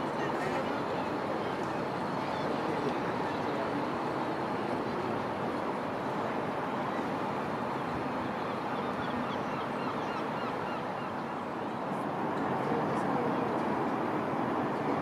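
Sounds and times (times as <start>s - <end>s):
distant traffic: 0.0s - 15.0s.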